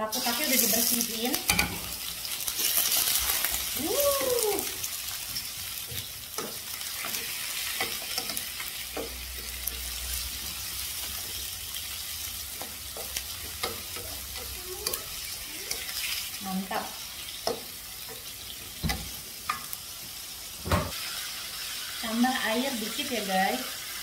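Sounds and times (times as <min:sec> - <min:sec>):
cuttlefish sizzling in hot oil: 0:00.0 - 0:24.0.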